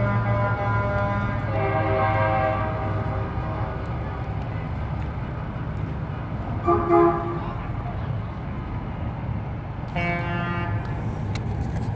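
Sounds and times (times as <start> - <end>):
truck air horn chord: 0.0 - 3.2, 6.6 - 7.4, 9.9 - 10.9
diesel truck engines rumbling: 0.0 - 11.9.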